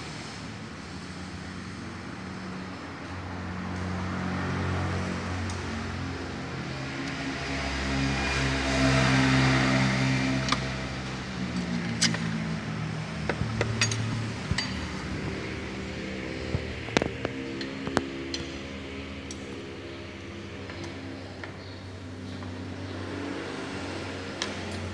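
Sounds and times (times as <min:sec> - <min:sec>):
steady mechanical hum: 0:00.0 - 0:24.9
metal tools clinking: 0:13.4 - 0:15.1.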